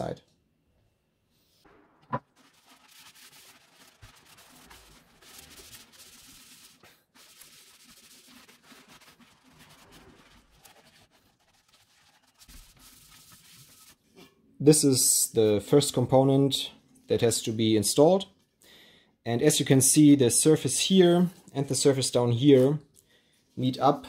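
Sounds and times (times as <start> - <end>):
cloth scrubbing inside metal housing: 2.2 - 14.2.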